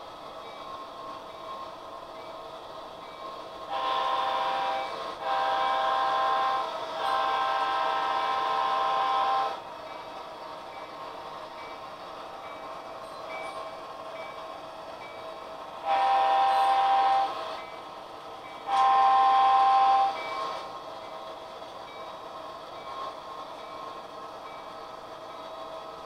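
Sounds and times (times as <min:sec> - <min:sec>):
faint model train hum: 0:00.0 - 0:26.0
diesel air horn blasts: 0:03.7 - 0:09.6, 0:15.8 - 0:17.3, 0:18.7 - 0:20.1.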